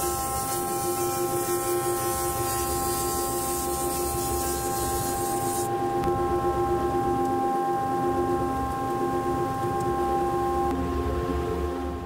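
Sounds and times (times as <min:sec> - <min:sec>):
high hiss of wood feeding: 0:00.0 - 0:05.7
thickness planer whining: 0:00.0 - 0:06.8.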